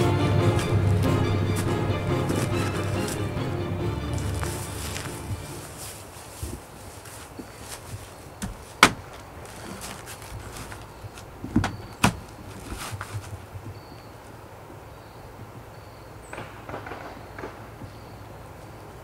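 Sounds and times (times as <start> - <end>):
footsteps on concrete steps: 0.0 - 3.5, 4.1 - 13.7
dull thumps: 7.4 - 13.4.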